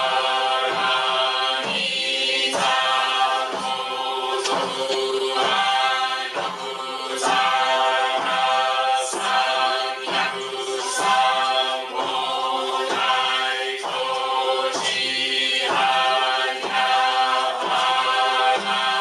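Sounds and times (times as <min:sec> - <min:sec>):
group chanting in unison: 0:00.0 - 0:19.0.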